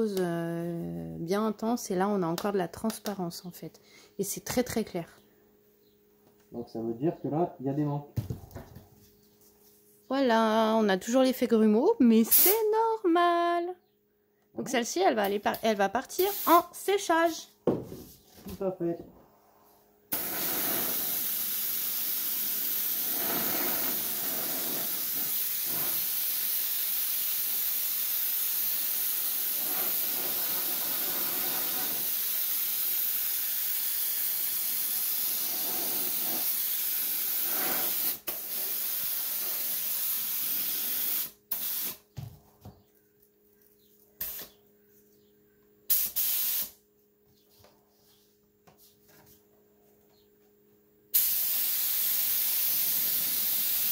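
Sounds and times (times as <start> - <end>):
spray gun hissing: 16.2 - 16.7, 20.1 - 42.0, 45.9 - 46.8, 51.1 - 53.9.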